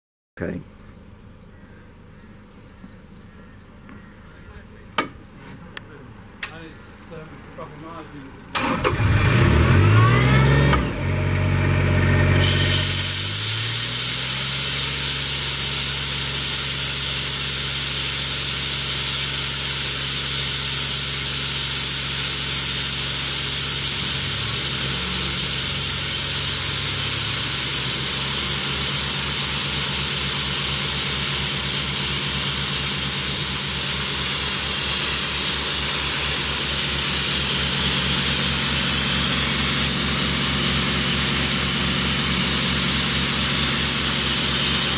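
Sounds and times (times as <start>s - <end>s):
air compressor running: 7.8s - 44.9s
compressed air hissing: 12.4s - 44.9s.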